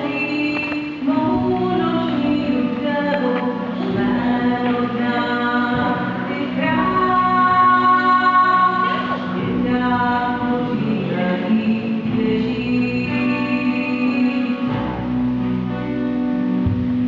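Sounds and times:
woman singing: 0.0 - 15.2
vocal group singing in harmony: 0.6 - 12.4.

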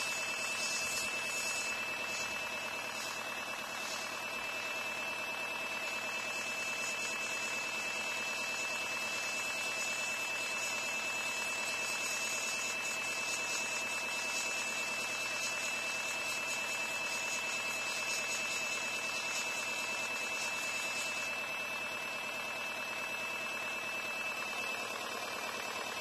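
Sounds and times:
compressor humming and whining: 0.0 - 26.0
airbrush spraying hiss: 0.4 - 2.2.

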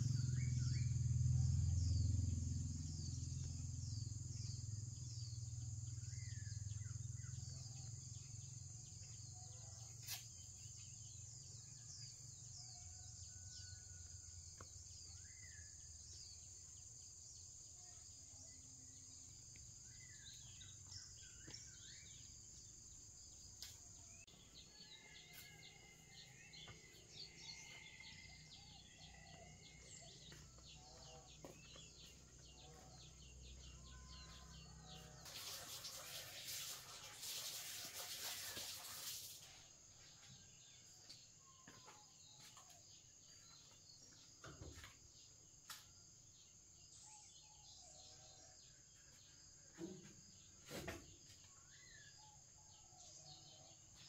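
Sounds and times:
birds chirping: 24.1 - 35.2.

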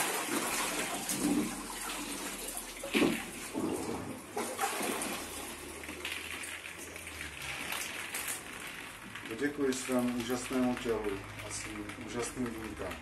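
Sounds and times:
water splashing off a body: 0.0 - 8.4.

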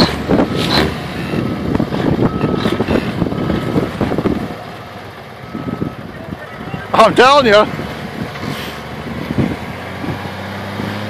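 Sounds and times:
truck engine under load: 0.0 - 11.0
wind buffeting microphone: 0.1 - 4.7, 7.6 - 11.0
faint beeps: 5.4 - 7.0.

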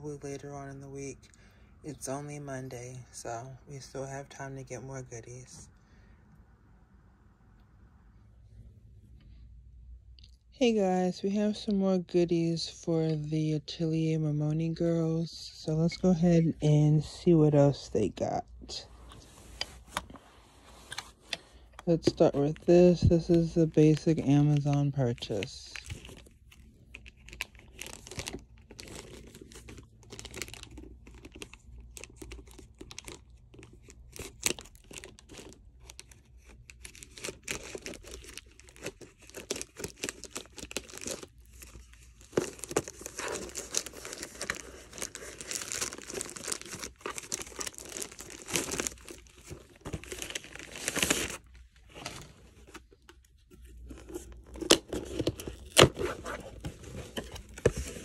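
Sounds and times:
plastic mailer tearing and crinkling: 21.8 - 58.0.

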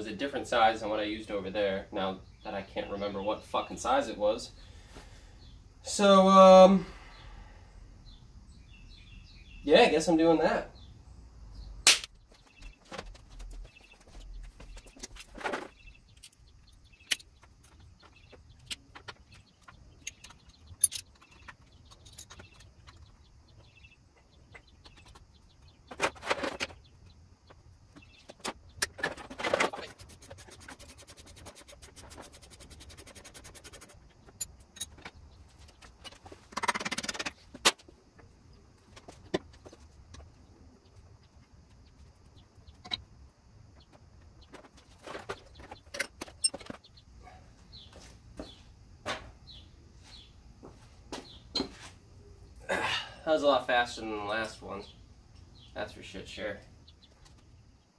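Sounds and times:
scraping rustles: 12.2 - 23.8, 24.6 - 38.0, 43.8 - 47.0
rapid even clicking: 28.3 - 37.8.

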